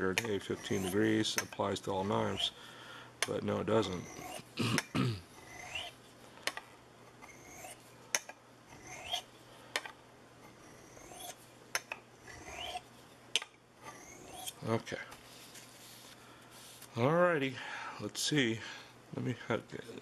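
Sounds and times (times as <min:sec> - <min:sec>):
knife scraping on sharpening stone: 0:00.2 - 0:01.5, 0:02.1 - 0:02.6, 0:03.8 - 0:04.5, 0:05.4 - 0:06.0, 0:07.2 - 0:07.8, 0:08.8 - 0:09.3, 0:10.4 - 0:11.4, 0:12.2 - 0:12.8, 0:13.8 - 0:14.6.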